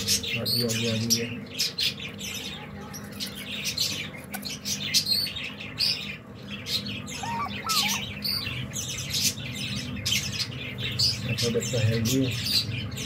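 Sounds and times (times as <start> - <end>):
small birds chirping: 0.0 - 13.0
low bird call: 7.0 - 8.4.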